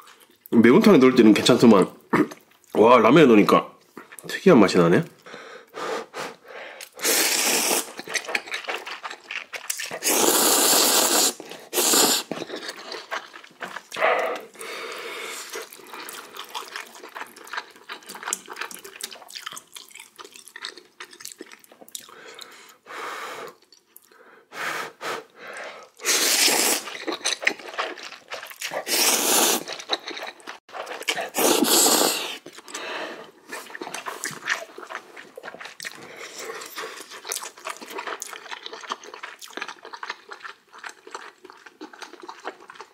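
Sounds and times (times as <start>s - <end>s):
man slurping noodles: 5.8s - 8.1s, 9.9s - 12.8s, 24.8s - 27.2s, 28.6s - 30.0s, 30.8s - 32.5s
chewing: 6.8s - 22.8s, 25.5s - 42.9s.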